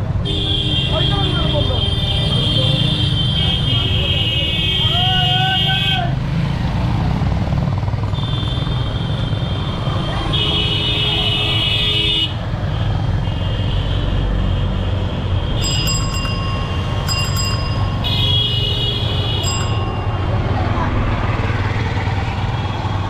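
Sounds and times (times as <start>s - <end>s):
motorbike engines rumbling: 0.0s - 23.0s
vehicle horns honking: 15.4s - 20.2s.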